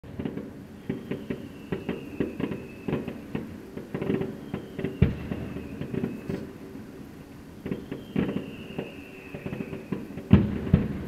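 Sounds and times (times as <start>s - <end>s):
fireworks bursting and crackling: 0.0s - 11.0s
high firework whistle: 0.3s - 6.8s, 7.6s - 11.0s
heavy firework boom: 3.9s - 6.5s, 9.5s - 11.0s.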